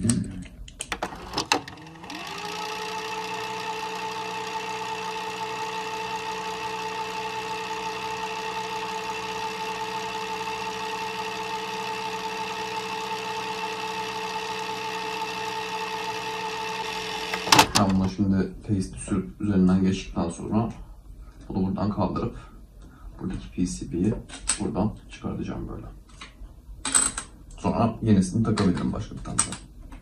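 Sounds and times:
tape fast-forward whir: 1.0 - 18.1.

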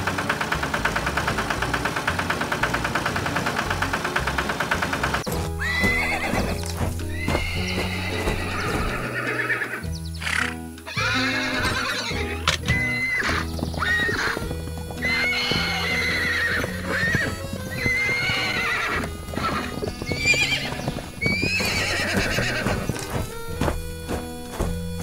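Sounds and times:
background music: 0.0 - 25.0
hooves clopping: 0.0 - 25.0
cartoon horse neighing: 5.6 - 14.4, 15.0 - 23.1.

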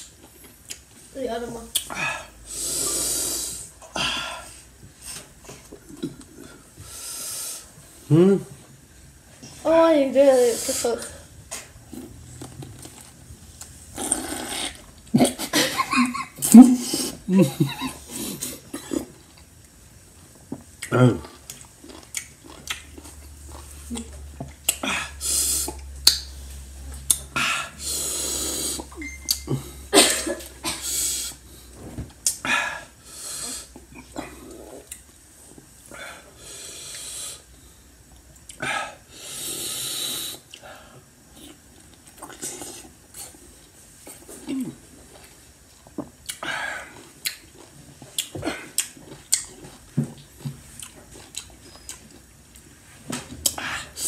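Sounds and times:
mouth clicks and smacks: 0.0 - 0.9, 1.7 - 2.0, 20.5 - 24.9, 25.6 - 26.3, 47.2 - 52.2
man hissing breaths: 1.9 - 5.3, 6.8 - 7.7, 24.8 - 25.8, 27.4 - 28.9, 30.7 - 31.7, 32.4 - 33.8, 35.9 - 37.5, 38.6 - 41.0
chewing: 18.3 - 24.9, 41.3 - 52.7.

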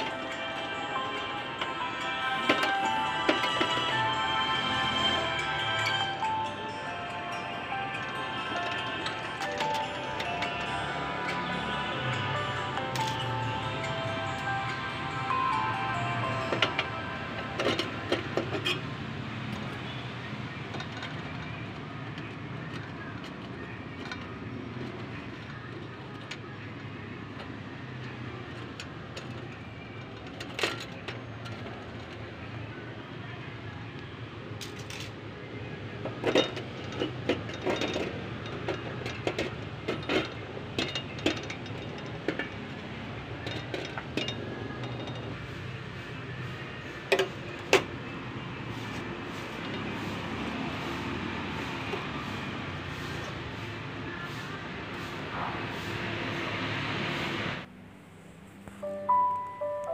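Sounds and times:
metal parts clinking: 34.6 - 35.2, 36.0 - 42.8, 43.4 - 45.4.

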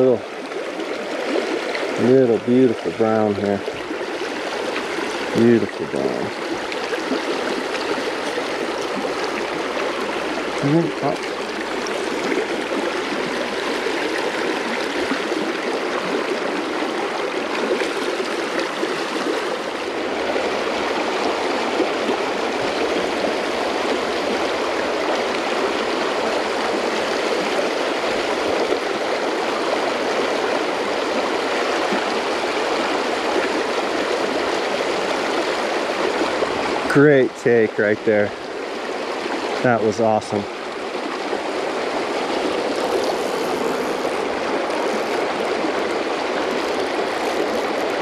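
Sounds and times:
creek rushing over rocks: 0.0 - 48.0.

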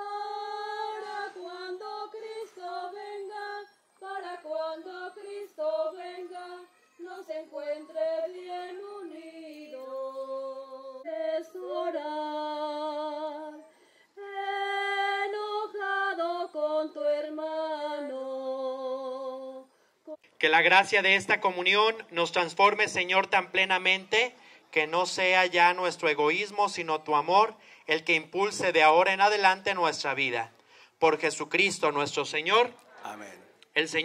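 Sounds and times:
woman singing a hymn unaccompanied: 0.0 - 20.2.

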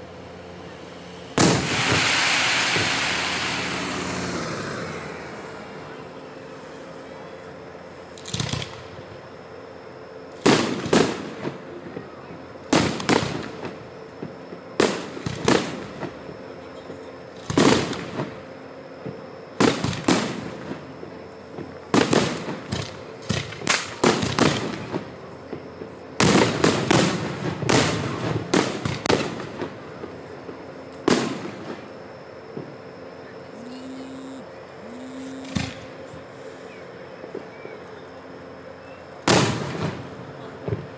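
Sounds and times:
fireworks bursting with sharp bangs: 1.3 - 4.4, 8.1 - 8.9, 10.4 - 16.2, 17.4 - 18.4, 19.0 - 20.8, 21.5 - 31.9, 34.9 - 35.9, 39.2 - 40.9.

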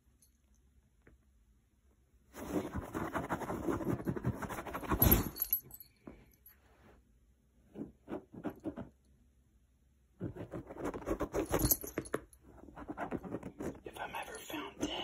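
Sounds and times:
metal collar tag jingling: 4.7 - 6.0, 11.4 - 12.4
cat pawing on fabric cushion: 10.2 - 12.0.

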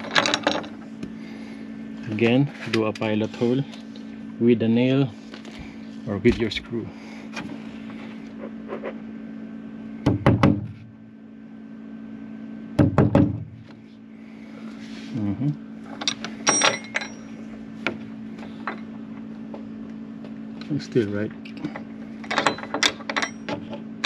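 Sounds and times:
steady low hum: 0.0 - 24.0
knocks and taps on wooden door: 10.1 - 10.7, 12.8 - 13.5.

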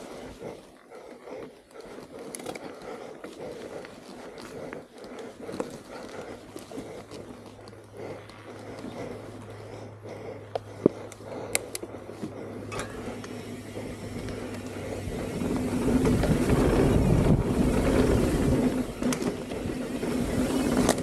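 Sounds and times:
bike tyres rumbling on dirt: 0.0 - 21.0
bike clicks and knocks: 1.4 - 9.2, 10.4 - 21.0
wind noise on microphone: 14.9 - 21.0.

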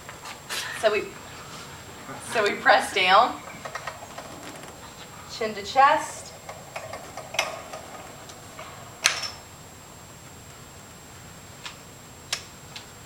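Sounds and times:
faint hiss with high tone: 0.5 - 11.6
exercise machine bar clicking: 3.3 - 9.4.

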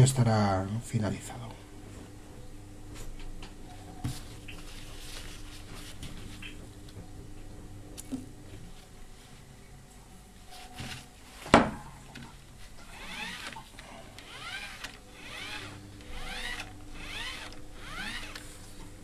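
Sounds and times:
squeaky whir of drive mechanism: 12.9 - 18.5.

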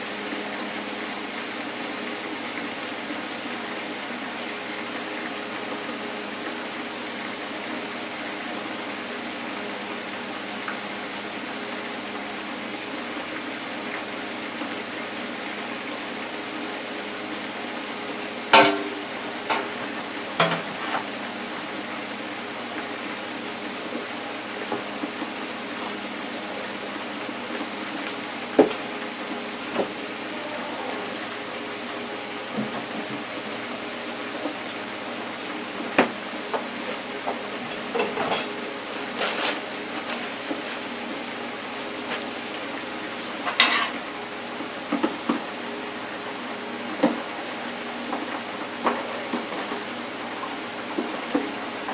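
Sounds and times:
oil sizzling in deep fryer: 0.0 - 51.9.

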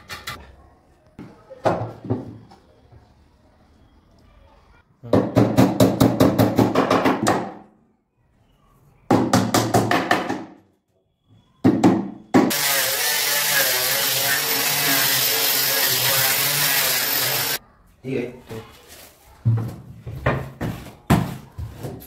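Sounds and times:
angle grinder sanding wood: 12.5 - 17.6.

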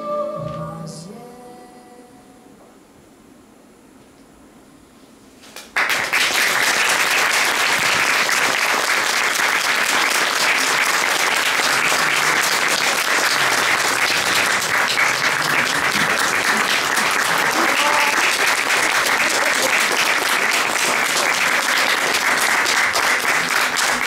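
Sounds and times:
audience applause: 5.6 - 24.0.

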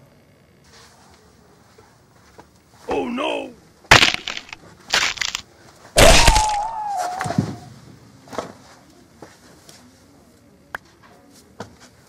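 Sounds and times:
heavy crash: 6.0 - 7.5
high falling wail: 6.0 - 7.7.

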